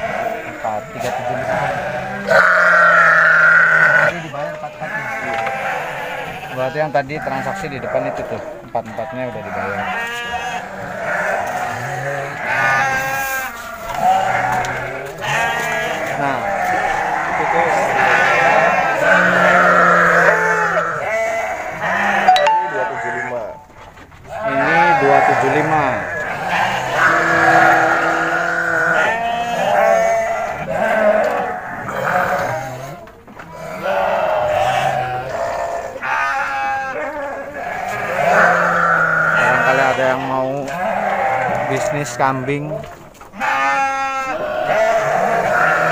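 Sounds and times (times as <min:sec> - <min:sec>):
sheep bleating: 0:00.0 - 0:23.7, 0:24.3 - 0:45.9.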